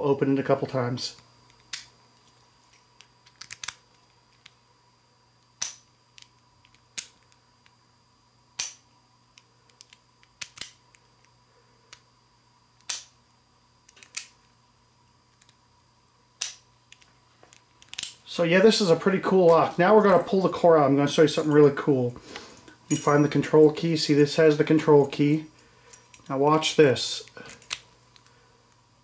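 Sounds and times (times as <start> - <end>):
padlock shackle clicking: 9.7 - 10.8.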